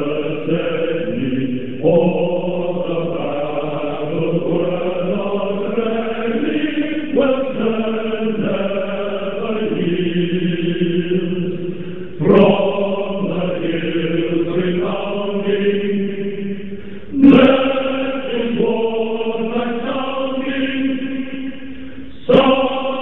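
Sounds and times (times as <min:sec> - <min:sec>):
choir singing held chords: 0:00.0 - 0:23.0.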